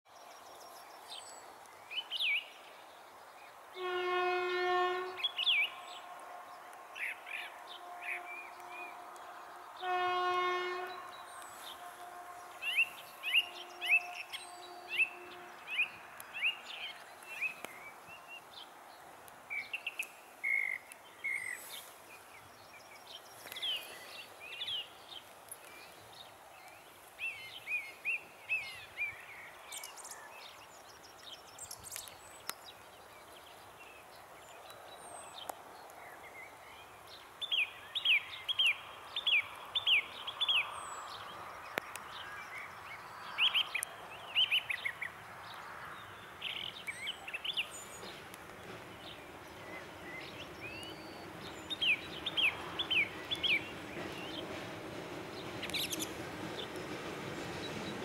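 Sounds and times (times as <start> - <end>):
locomotive horn blasts: 3.8 - 5.3, 9.8 - 15.7
blackbird singing: 4.8 - 6.1, 10.8 - 18.4, 19.5 - 21.8, 37.4 - 45.1, 49.0 - 54.6, 55.4 - 56.8.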